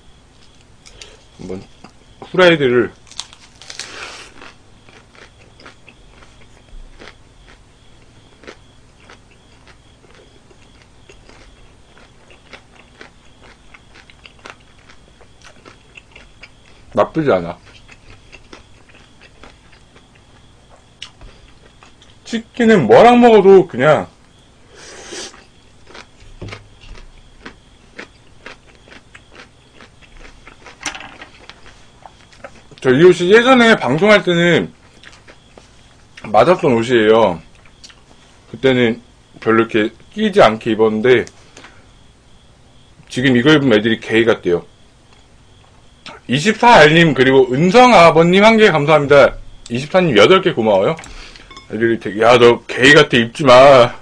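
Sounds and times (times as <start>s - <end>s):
fried chicken crunching: 3.0s - 7.6s, 8.3s - 16.8s, 17.6s - 22.1s, 25.4s - 30.8s.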